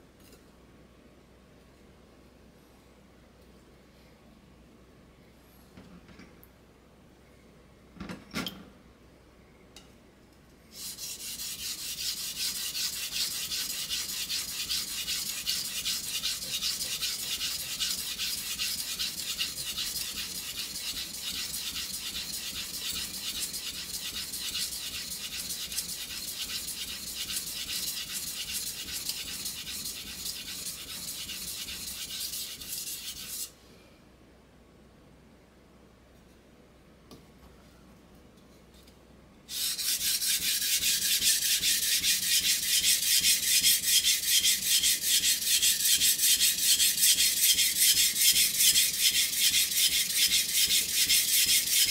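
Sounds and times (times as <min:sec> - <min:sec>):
knife scraping on whetstone: 0:10.7 - 0:33.5, 0:39.5 - 0:51.9.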